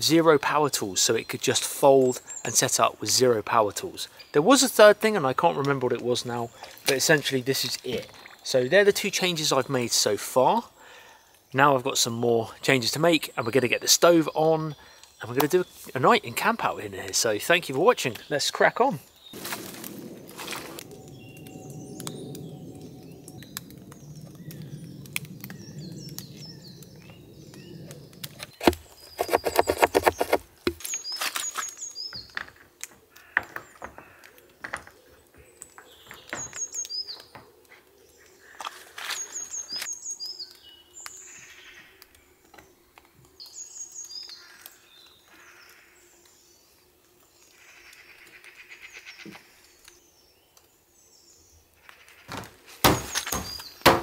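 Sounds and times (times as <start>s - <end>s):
small birds chirping: 0.0s - 32.5s, 33.1s - 52.3s, 52.9s - 53.9s
rapid scraping strokes: 28.3s - 30.5s
knocks and handling sounds: 28.4s - 35.0s.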